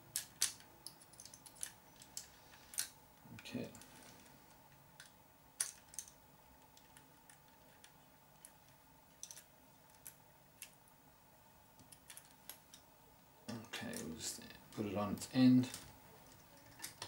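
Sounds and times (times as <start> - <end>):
clicks and taps of parts: 0.1 - 2.9.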